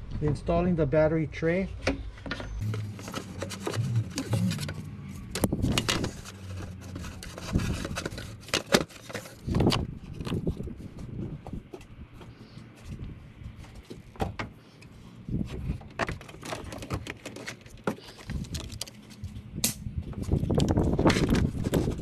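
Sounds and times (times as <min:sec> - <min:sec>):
battery tray knocks and scrapes: 0:01.9 - 0:10.4.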